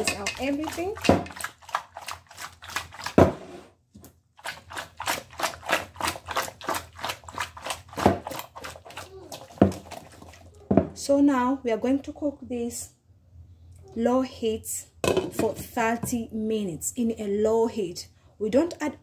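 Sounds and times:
pot knocking and rattling: 0.0s - 1.9s, 5.3s - 11.0s.

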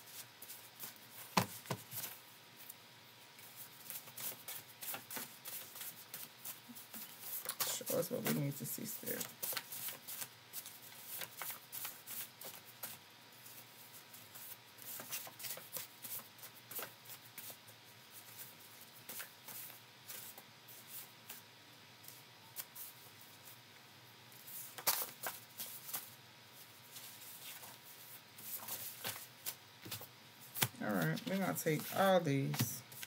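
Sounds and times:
cards being shuffled: 3.8s - 13.0s, 24.6s - 26.1s.

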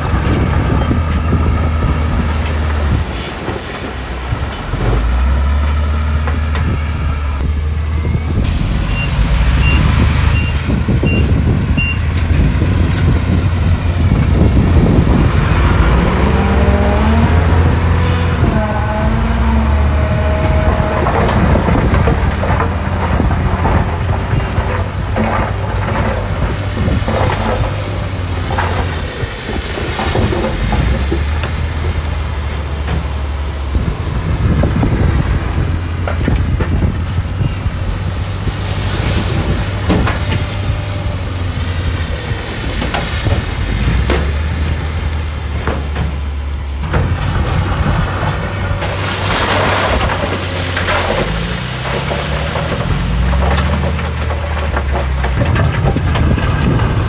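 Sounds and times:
heavy machinery diesel engines: 0.0s - 57.0s.

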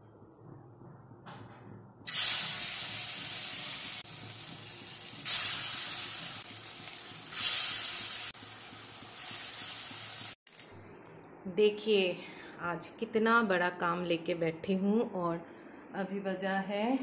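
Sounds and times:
food frying in hot oil: 2.1s - 10.4s.

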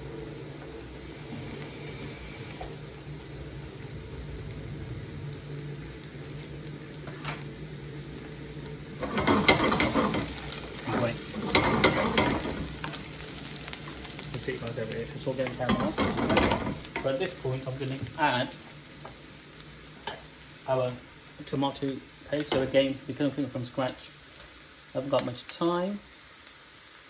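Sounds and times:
onions sizzling in a pan: 0.0s - 27.0s
metal spoon scraping a pan: 9.0s - 10.4s, 11.4s - 12.7s.

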